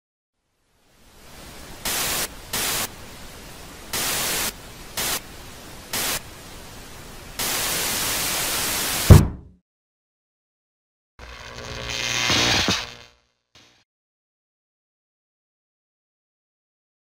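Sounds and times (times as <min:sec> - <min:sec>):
television static hiss: 0:00.5 - 0:09.1
loud static bursts: 0:01.0 - 0:09.3, 0:11.2 - 0:13.8.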